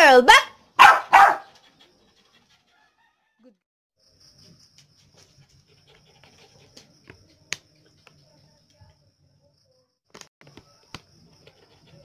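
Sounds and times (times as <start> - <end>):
dog panting: 1.2 - 3.0, 4.9 - 8.3, 11.3 - 12.0.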